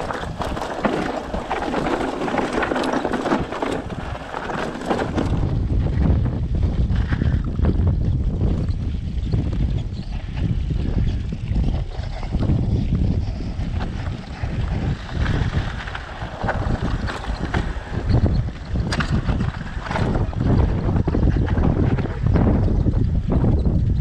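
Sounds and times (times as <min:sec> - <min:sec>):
bike clicks and knocks: 0:00.0 - 0:05.5, 0:13.7 - 0:20.7
bike tyres rolling over rock: 0:00.0 - 0:24.0
wind buffeting microphone: 0:00.0 - 0:24.0.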